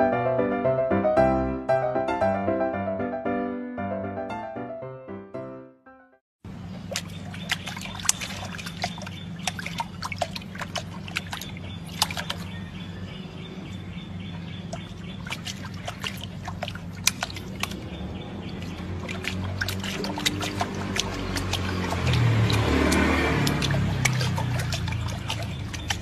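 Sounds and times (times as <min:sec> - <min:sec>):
puppy splashing water: 0:06.5 - 0:26.0.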